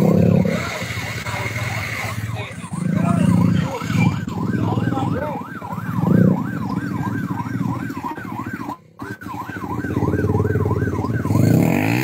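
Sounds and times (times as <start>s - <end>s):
motorcycle engine running: 0.0s - 12.0s
siren yelping: 0.0s - 12.0s.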